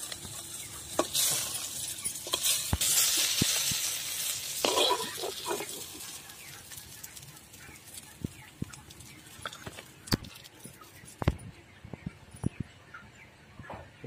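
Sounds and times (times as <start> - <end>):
frying oil hissing: 0.0 - 10.1.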